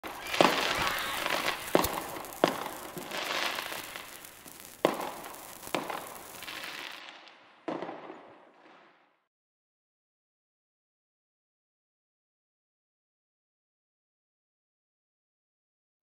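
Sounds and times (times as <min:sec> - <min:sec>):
fuse hissing and sputtering: 0:00.0 - 0:06.5
firecracker cracks and bangs: 0:00.0 - 0:09.3.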